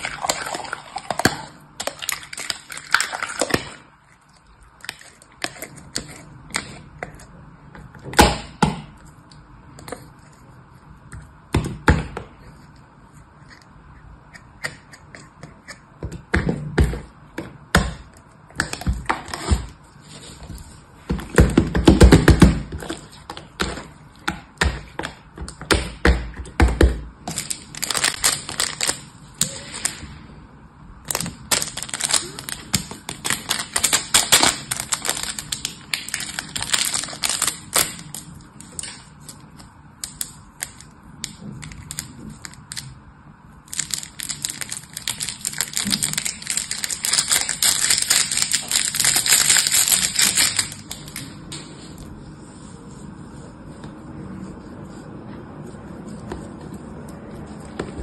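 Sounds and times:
slime squelching and crackling: 0:00.0 - 0:07.4, 0:27.2 - 0:30.2, 0:31.0 - 0:58.0.

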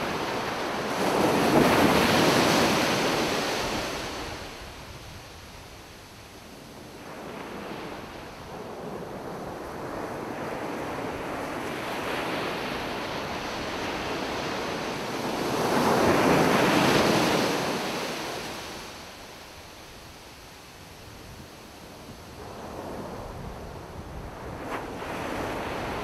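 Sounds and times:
ocean surf breaking: 0:00.0 - 0:04.8, 0:07.1 - 0:19.2.

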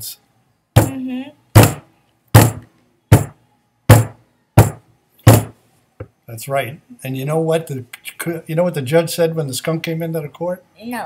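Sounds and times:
sharp thumps: 0:00.8 - 0:01.0, 0:01.6 - 0:05.6.

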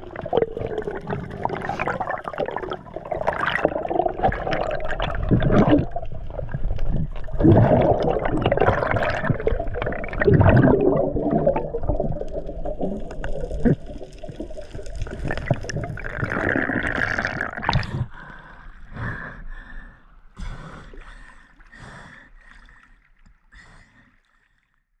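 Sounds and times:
bubbling: 0:00.0 - 0:18.1
muffled water rushing underwater: 0:00.0 - 0:19.8.

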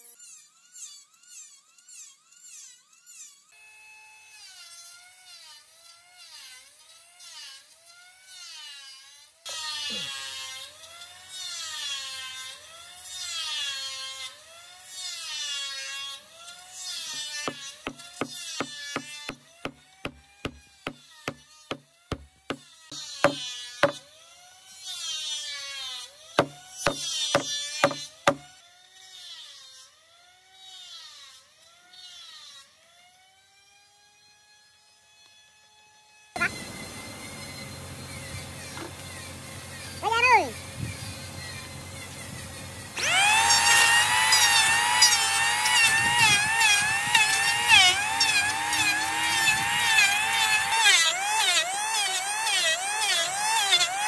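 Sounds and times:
power tool motor whining on wood: 0:00.0 - 0:54.0
sharp knocks: 0:17.1 - 0:22.6, 0:23.2 - 0:24.0, 0:26.4 - 0:28.5.

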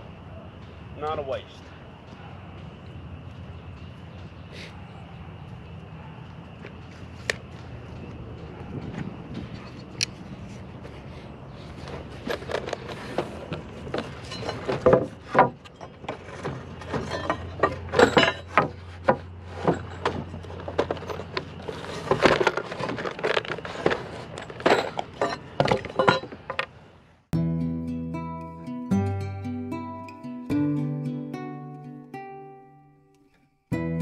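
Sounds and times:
lumber and tools knocking and scraping: 0:11.6 - 0:26.8.

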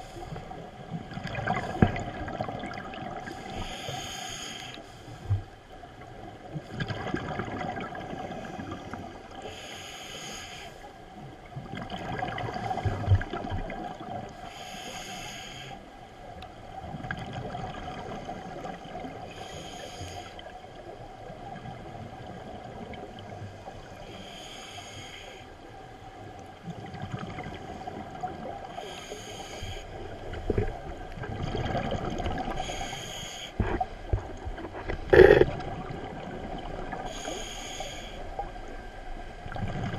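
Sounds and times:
hissing regulator inhales: 0:03.3 - 0:05.4, 0:09.4 - 0:10.8, 0:14.5 - 0:15.8, 0:19.3 - 0:20.4, 0:24.1 - 0:25.5, 0:28.8 - 0:30.0, 0:32.6 - 0:33.6, 0:37.1 - 0:38.2
gurgle of exhaled bubbles: 0:06.7 - 0:08.7, 0:11.7 - 0:14.1, 0:30.5 - 0:32.6, 0:34.7 - 0:37.2.

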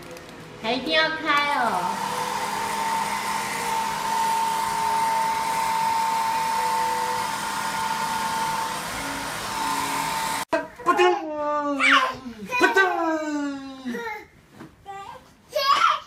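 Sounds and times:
toy hair dryer whirring: 0:01.6 - 0:10.5.

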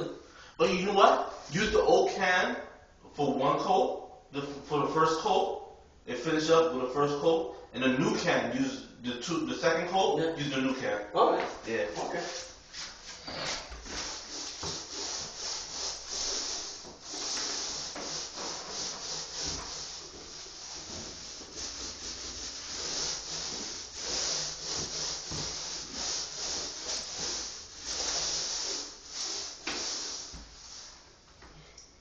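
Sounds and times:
paint rubbing strokes: 0:11.8 - 0:31.2.

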